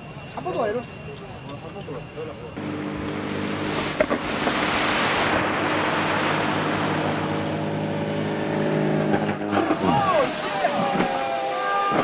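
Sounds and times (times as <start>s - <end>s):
propeller engine drone: 0.0s - 12.0s.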